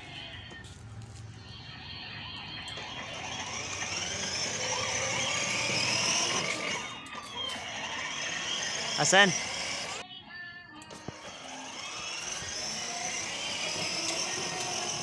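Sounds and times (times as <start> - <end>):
small electric motor running: 2.7 - 10.0, 11.1 - 15.0.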